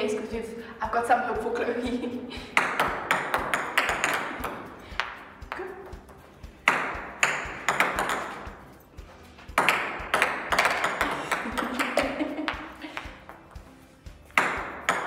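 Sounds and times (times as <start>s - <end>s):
ping-pong ball bouncing on table: 2.5s - 8.7s, 9.5s - 12.7s, 14.3s - 15.0s.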